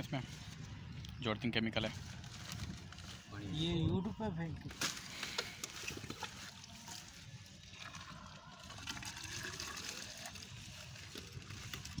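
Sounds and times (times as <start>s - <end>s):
water running from a hose: 7.5s - 12.0s.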